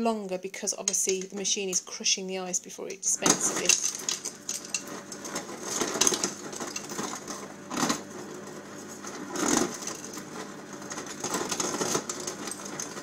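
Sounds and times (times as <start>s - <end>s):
ice dispenser crushing ice: 3.0s - 13.0s.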